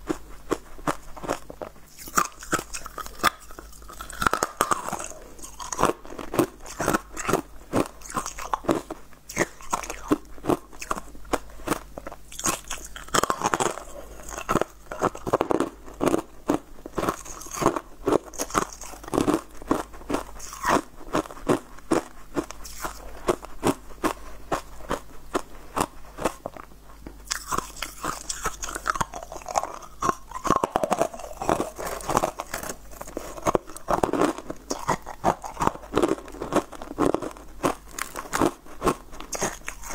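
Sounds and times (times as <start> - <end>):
crunching frozen corn: 0.1 - 39.9.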